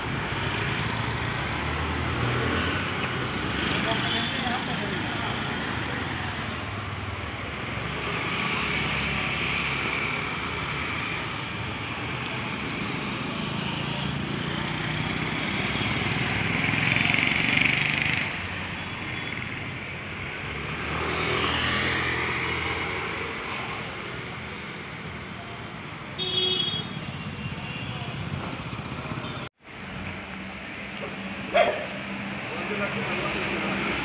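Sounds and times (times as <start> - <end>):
scooters and motorbikes passing: 0.0 - 25.4, 26.8 - 34.0.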